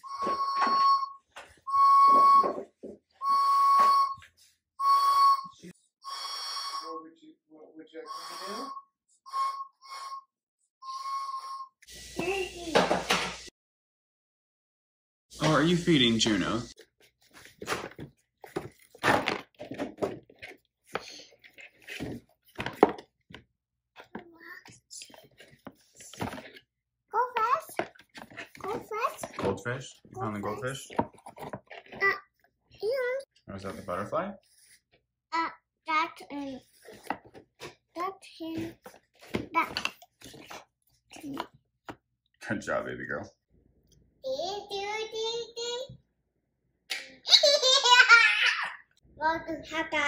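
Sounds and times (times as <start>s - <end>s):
toy horn blasts: 1.7s - 2.6s, 3.2s - 4.2s, 4.8s - 7.1s, 8.0s - 11.8s.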